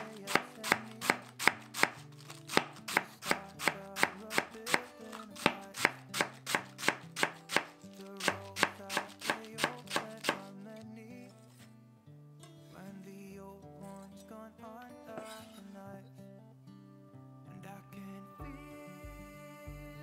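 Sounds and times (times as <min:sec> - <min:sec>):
knife chopping cabbage on wooden board: 0:00.0 - 0:10.5
soft background music: 0:00.0 - 0:12.0, 0:12.6 - 0:20.0.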